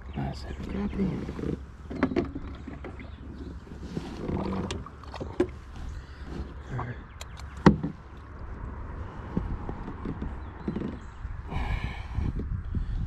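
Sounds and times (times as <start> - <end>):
knocks and taps in kayak: 0.6 - 5.6, 6.3 - 8.2, 9.3 - 11.2.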